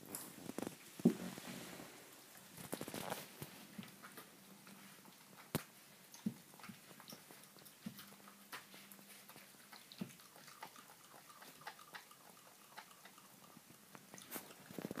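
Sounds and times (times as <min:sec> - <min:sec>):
dog gnawing a bone: 0:03.9 - 0:15.0.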